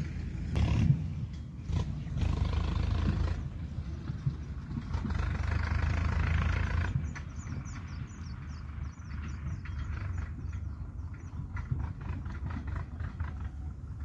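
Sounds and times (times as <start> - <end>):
small bird chirping: 6.9 - 11.7.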